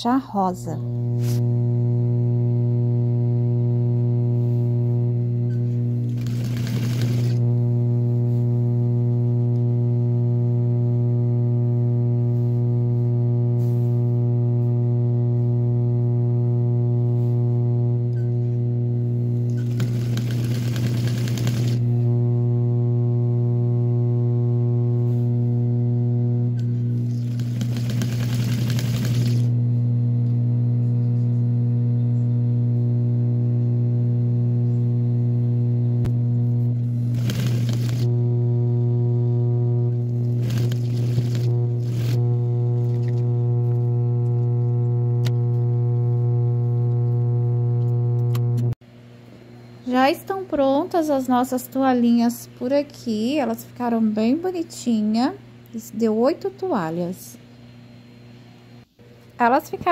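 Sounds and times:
sewing machine motor hum: 0:00.8 - 0:31.4, 0:34.9 - 0:48.8
sewing machine stitching: 0:06.0 - 0:07.4, 0:19.5 - 0:21.9, 0:27.1 - 0:29.5, 0:37.1 - 0:38.1, 0:40.4 - 0:42.2.

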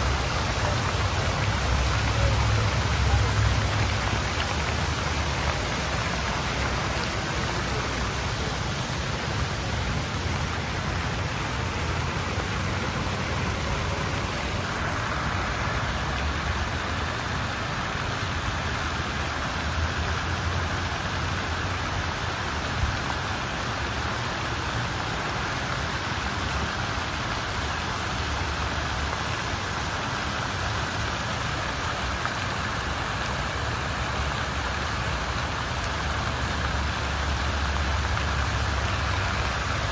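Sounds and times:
fountain water splashing: 0:00.0 - 0:39.9.

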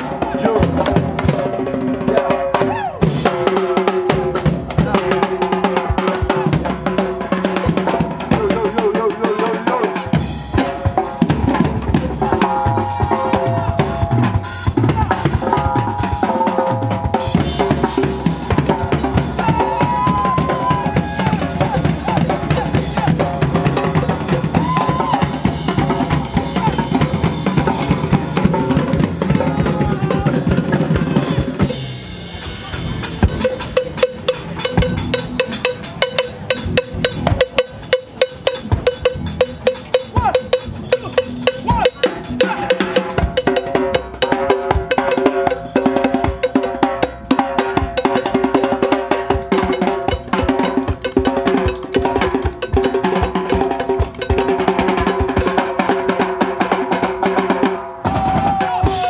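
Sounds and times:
percussion ensemble drumming: 0:00.0 - 0:59.0
cowbell struck: 0:10.2 - 0:24.6, 0:32.7 - 0:55.7.

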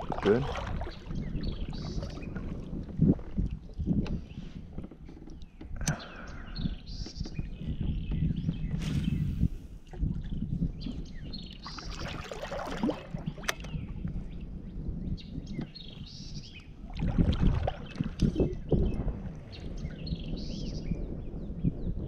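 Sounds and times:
water lapping and splashing: 0:00.0 - 0:04.4, 0:08.9 - 0:13.9, 0:16.8 - 0:19.5
small birds chirping: 0:03.7 - 0:09.5, 0:10.2 - 0:16.8.

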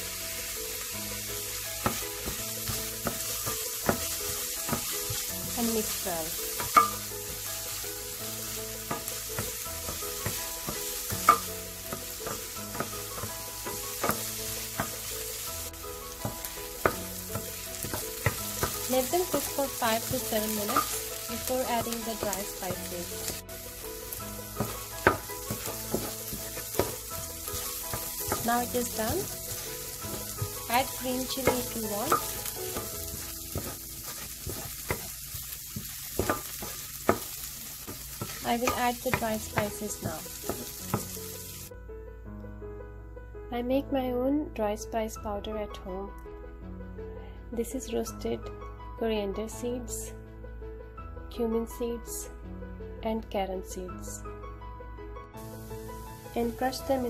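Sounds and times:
onion sizzling in a pan: 0:00.0 - 0:41.7, 0:55.4 - 0:57.0
spatula scraping and knocking pan: 0:01.2 - 0:41.6.

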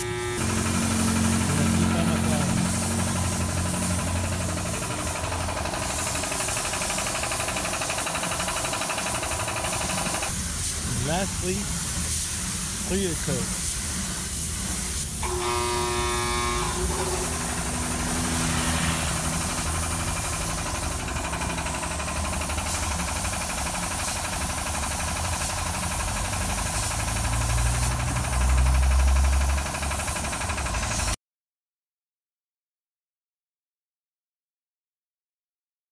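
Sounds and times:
spray gun hissing: 0:00.0 - 0:31.2
low engine-like rumble: 0:15.8 - 0:23.2.

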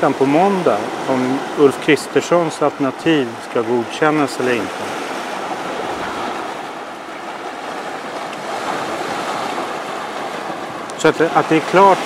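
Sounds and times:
surf breaking on rocky shore: 0:00.0 - 0:12.0
wind on microphone: 0:04.7 - 0:10.9.

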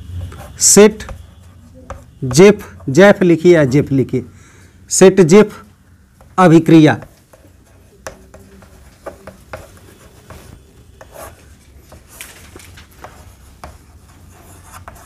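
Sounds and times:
chalk scratching on blackboard: 0:00.1 - 0:03.0, 0:07.0 - 0:12.2, 0:12.9 - 0:15.0.

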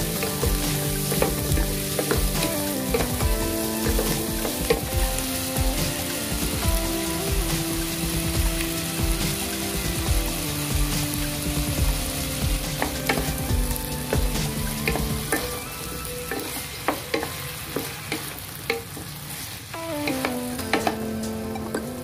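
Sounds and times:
spatula knocking and scraping pan: 0:00.0 - 0:06.6
food sizzling in frying pan: 0:00.0 - 0:22.0.

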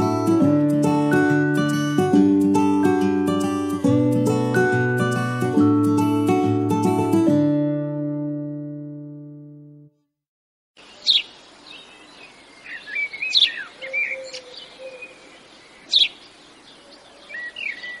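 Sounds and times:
guitar chord ringing: 0:00.0 - 0:09.9
birds chirping and warbling: 0:10.8 - 0:18.0.

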